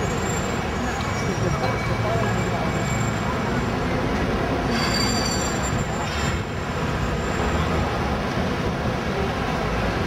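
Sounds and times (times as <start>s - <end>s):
faint high squeal: 0.0s - 3.8s, 4.7s - 6.4s
street traffic rumble: 0.0s - 10.0s.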